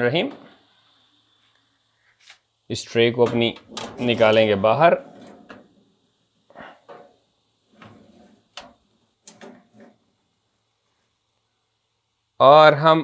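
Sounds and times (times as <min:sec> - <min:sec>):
oven tray scraping on runners: 0:03.3 - 0:05.8, 0:07.7 - 0:08.6, 0:09.3 - 0:10.0.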